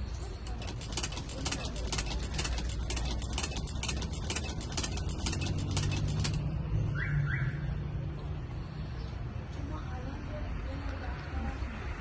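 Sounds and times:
sewing machine needle clicking: 0.3s - 6.5s.

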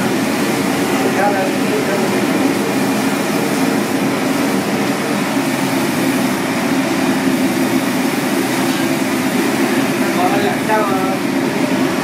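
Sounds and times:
constant machine hum: 0.0s - 12.0s.

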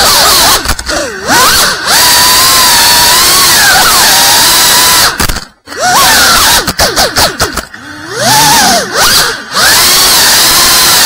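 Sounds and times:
quadcopter motors whining: 0.0s - 11.0s.

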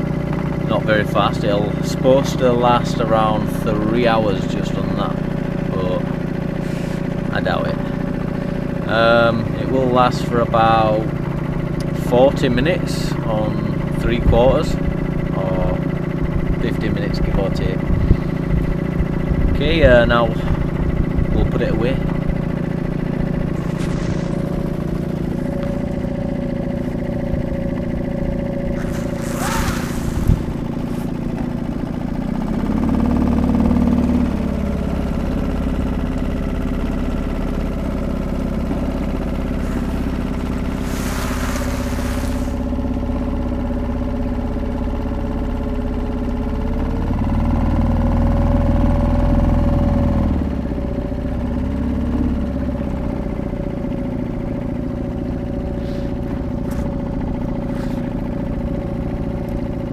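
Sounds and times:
outboard motor running: 0.0s - 59.9s
short rushes of noise: 23.6s - 25.8s, 28.8s - 31.4s, 39.6s - 42.8s.

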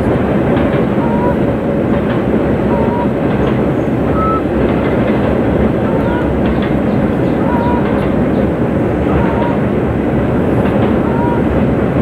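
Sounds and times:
freight train rumbling over bridge: 0.0s - 12.0s
wheels clicking over rails: 0.0s - 12.0s.

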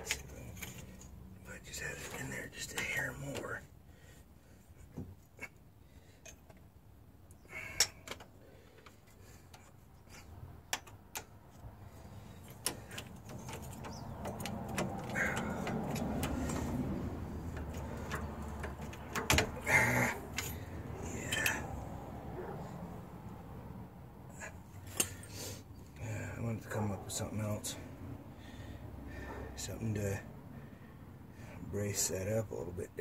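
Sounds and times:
metal tools clinking and tapping: 0.0s - 1.2s, 12.4s - 20.7s
metal knocks: 12.6s - 20.6s.

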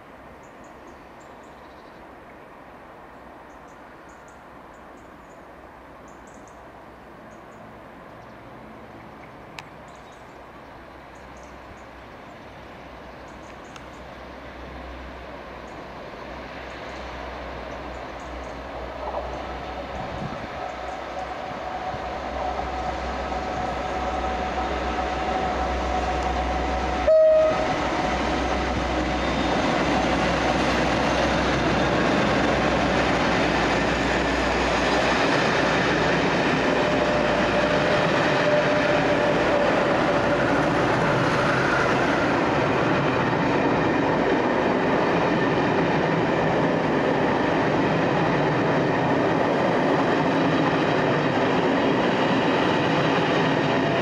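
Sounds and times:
diesel locomotive passing: 0.0s - 54.0s
train wheels clattering on rails: 16.7s - 54.0s
train horn blast: 21.2s - 29.4s, 36.6s - 40.5s.

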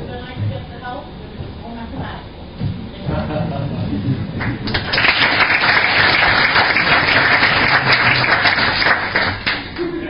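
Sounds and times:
audience applause: 4.4s - 9.9s.

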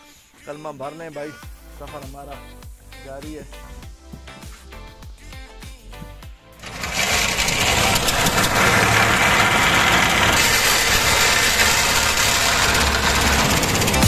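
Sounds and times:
motorboat engine running: 6.6s - 14.0s.

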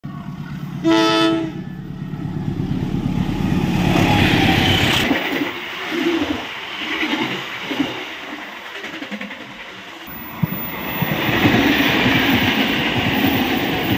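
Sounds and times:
diesel locomotive engine rumbling: 0.0s - 13.9s
locomotive horn blast: 0.8s - 1.9s
train wheels clacking over rail joints: 4.2s - 13.9s.

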